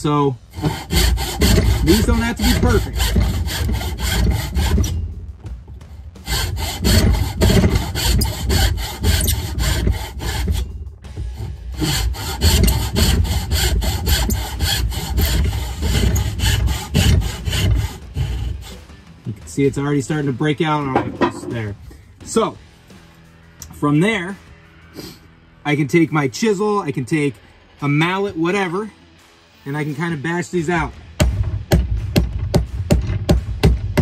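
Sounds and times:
handsaw cutting wood: 0.0 - 5.0, 6.1 - 19.0.

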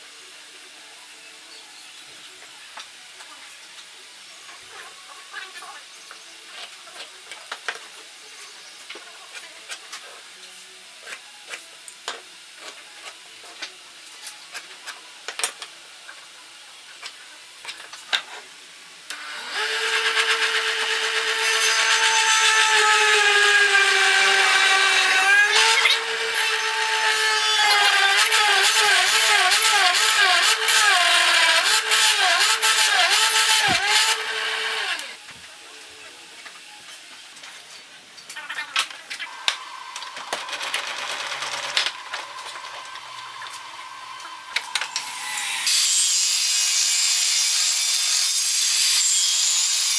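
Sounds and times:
drill press motor whine: 19.1 - 35.2.

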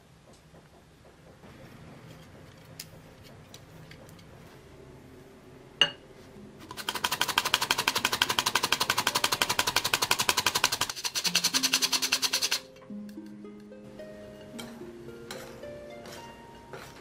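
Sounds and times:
flour sifter clicking rattle: 6.7 - 12.7.

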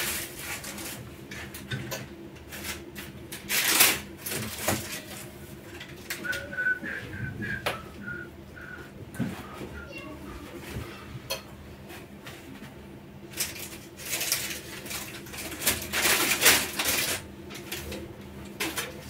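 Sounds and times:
paper rustling: 13.4 - 17.9.

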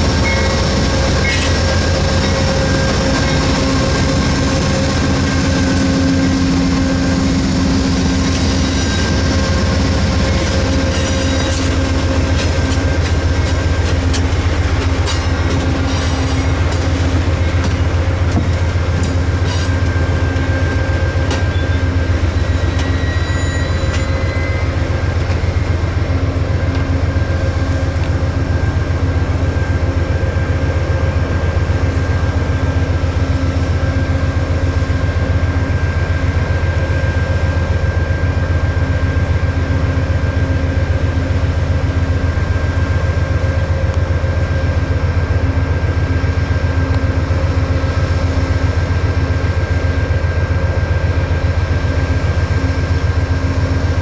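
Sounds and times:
train clicks: 0.0 - 29.5, 31.7 - 34.9
diesel locomotive hum: 0.0 - 54.0
steady whining tones: 0.0 - 54.0
brief high brake squeals: 20.6 - 24.8.

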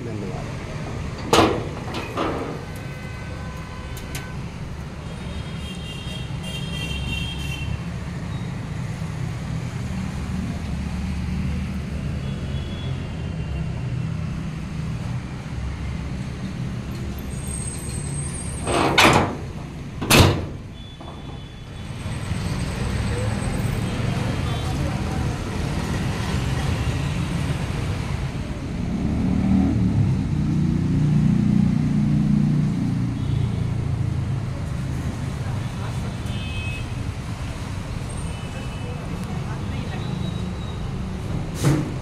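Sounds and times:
metal hood panels thumping shut: 1.2 - 2.7, 18.7 - 21.4.

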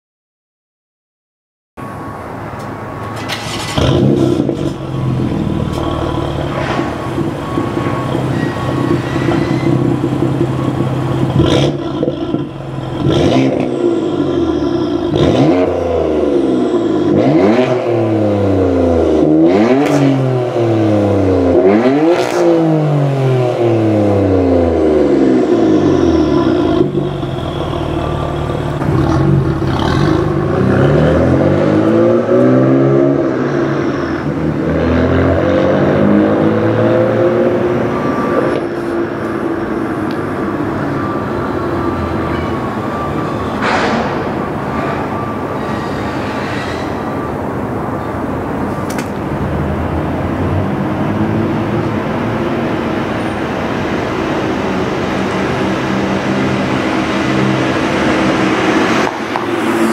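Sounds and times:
car engine starting and idling: 1.8 - 45.8
engine revving: 3.2 - 46.0, 53.8 - 59.9.

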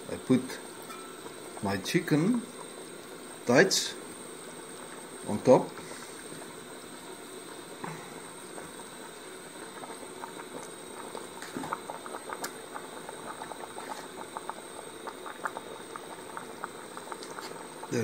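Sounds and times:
water boiling with pops: 0.0 - 18.0.

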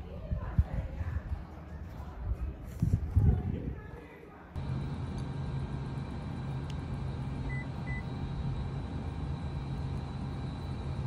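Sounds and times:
steady low hum: 4.6 - 11.0.

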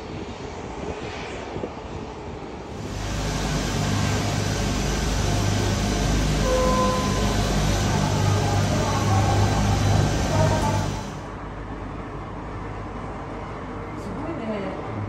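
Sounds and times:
ropeway machinery humming: 2.7 - 11.4
brief higher tones: 4.0 - 11.2.

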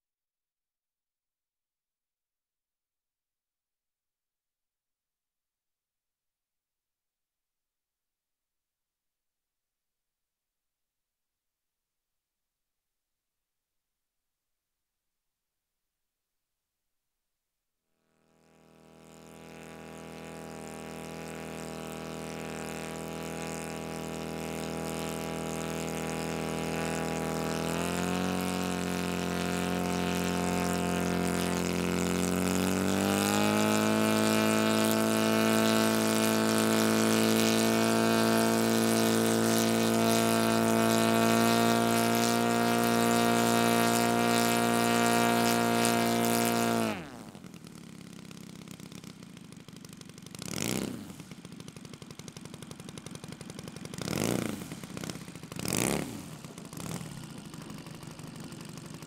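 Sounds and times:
model aircraft engine running: 18.1 - 59.0.

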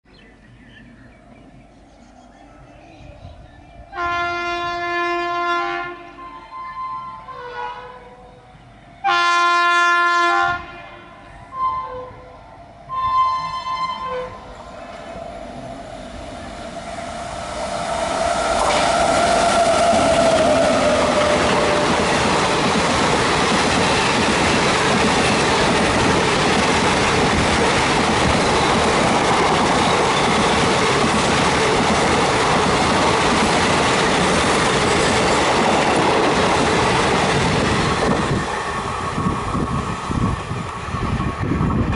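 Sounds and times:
train passing at speed: 0.2 - 41.9
train horn blast: 4.0 - 8.2, 9.0 - 14.5
clattering train wheels: 18.2 - 41.9.

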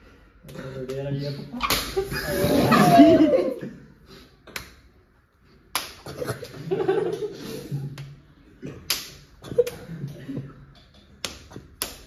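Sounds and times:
slaps to the face: 1.6 - 2.0, 5.7 - 6.1, 8.8 - 9.9, 11.2 - 12.0.

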